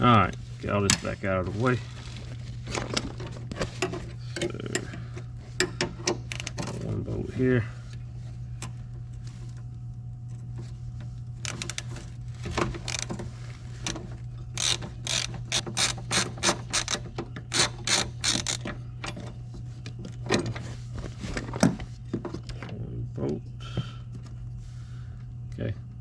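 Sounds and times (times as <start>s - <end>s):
ratcheting screwdriver clicking: 14.6s - 18.7s.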